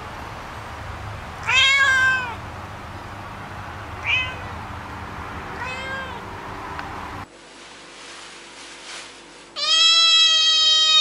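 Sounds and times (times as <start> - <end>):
cat meowing: 1.4 - 2.4, 4.0 - 4.5, 5.6 - 6.2, 9.6 - 11.0.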